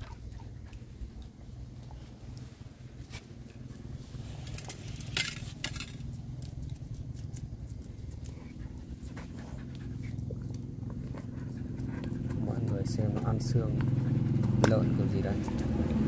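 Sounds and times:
steady low hum: 0:00.0 - 0:16.0
dog teeth clicking on bone: 0:10.4 - 0:15.7.

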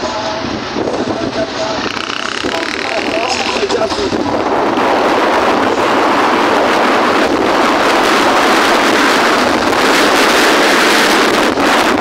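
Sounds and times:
motorcycle engine and road noise: 0:00.0 - 0:12.0
wind rushing over microphone: 0:00.0 - 0:12.0.

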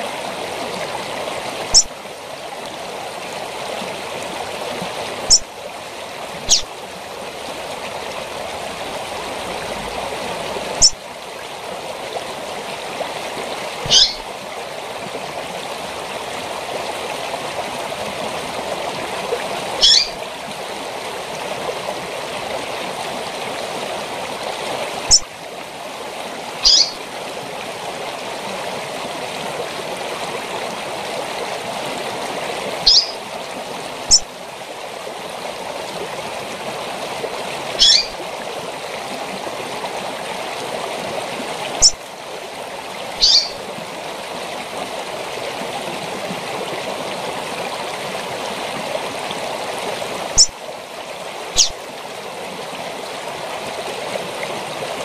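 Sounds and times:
waterfall rushing: 0:00.0 - 0:55.0
bird high call notes: 0:01.7 - 0:01.9, 0:06.5 - 0:06.7, 0:13.8 - 0:14.2, 0:19.8 - 0:20.2, 0:26.6 - 0:27.0, 0:32.9 - 0:33.2, 0:37.8 - 0:38.2, 0:43.2 - 0:43.6.

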